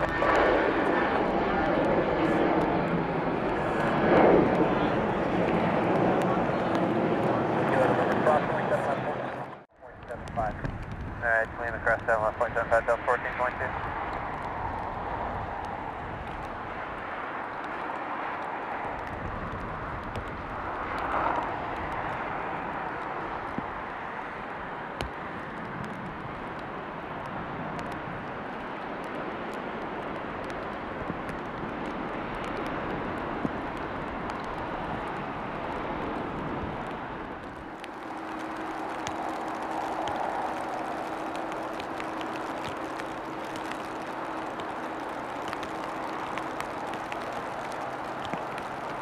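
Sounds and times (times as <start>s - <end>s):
jet engine rushing: 0.0s - 24.1s.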